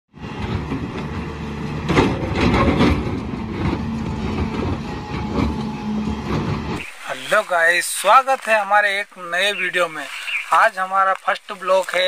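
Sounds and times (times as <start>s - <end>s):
heavy diesel engine running: 0.1s - 7.4s
knocks or clanks: 0.3s - 6.8s.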